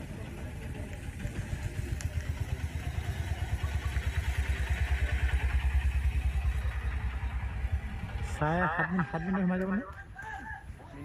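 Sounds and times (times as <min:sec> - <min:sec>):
vehicle engine running: 0:00.0 - 0:11.0.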